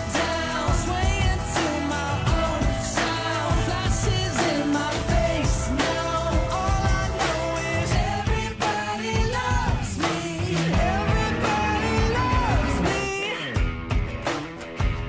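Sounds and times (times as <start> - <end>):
person singing: 0.0 - 13.7
drum beat with backing instruments: 0.0 - 15.0.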